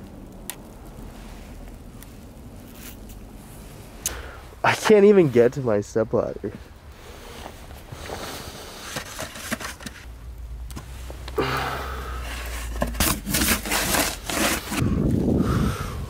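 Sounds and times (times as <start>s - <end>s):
snow crunching and scraping: 1.1s - 10.1s, 10.8s - 11.3s, 12.1s - 15.0s.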